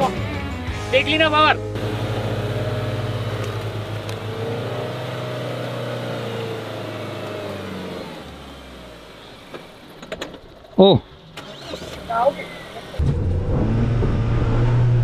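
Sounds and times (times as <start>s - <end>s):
suv engine revving high: 1.1s - 9.9s, 11.4s - 15.0s.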